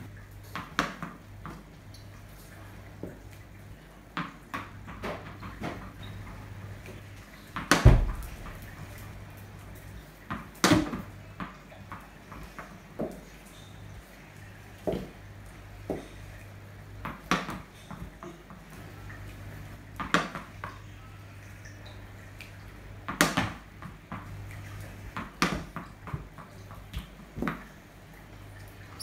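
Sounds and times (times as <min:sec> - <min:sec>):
ball bouncing on tiled floor: 0:00.4 - 0:01.6, 0:04.1 - 0:06.1, 0:07.6 - 0:08.7, 0:10.2 - 0:13.7, 0:14.8 - 0:15.2, 0:15.8 - 0:16.2, 0:17.0 - 0:18.6, 0:20.0 - 0:20.8, 0:23.0 - 0:24.4, 0:25.1 - 0:27.7.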